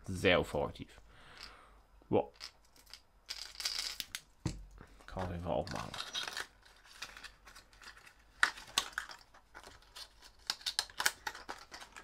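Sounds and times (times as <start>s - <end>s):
plastic packaging crinkling: 5.1s - 12.0s.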